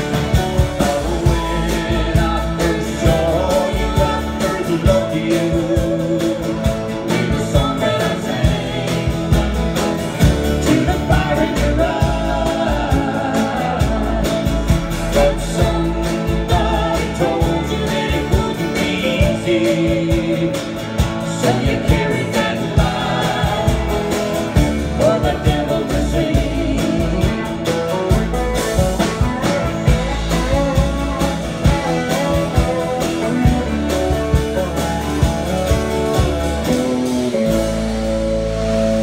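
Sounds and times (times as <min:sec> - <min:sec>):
man singing: 0:00.0 - 0:28.4, 0:29.0 - 0:38.0
country band playing: 0:00.0 - 0:39.0
woman singing: 0:00.6 - 0:09.4, 0:10.6 - 0:27.7.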